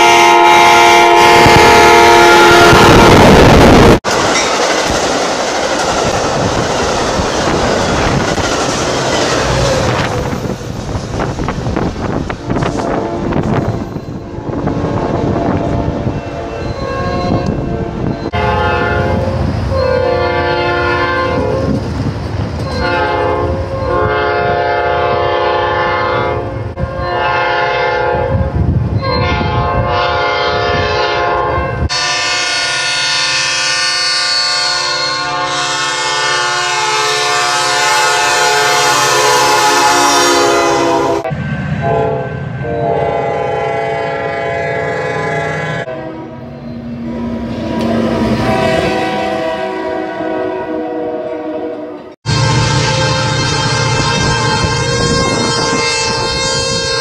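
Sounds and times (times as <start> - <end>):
locomotive air horn blasts: 0.0 - 4.0, 12.4 - 21.8, 22.7 - 46.5, 47.1 - 57.0
train rumbling: 0.0 - 57.0.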